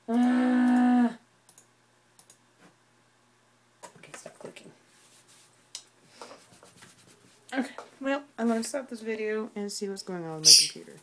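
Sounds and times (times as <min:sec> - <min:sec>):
keyboard or mouse clicks: 0:01.5 - 0:02.4.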